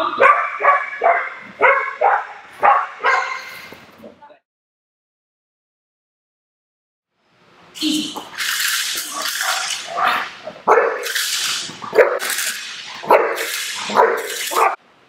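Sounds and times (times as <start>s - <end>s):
dog barking sharply: 0.2s - 3.6s, 9.4s - 11.1s, 11.9s - 12.3s, 13.0s - 14.8s.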